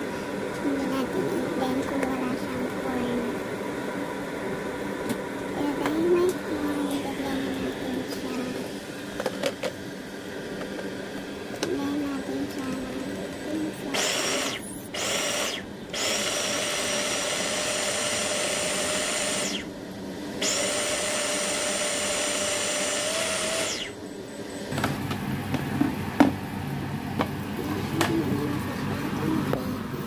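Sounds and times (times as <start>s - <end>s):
blender motor whining: 10.5s - 29.6s.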